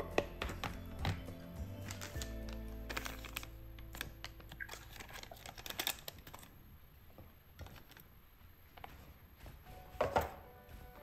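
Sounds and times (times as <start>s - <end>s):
small containers clicking: 0.0s - 6.6s.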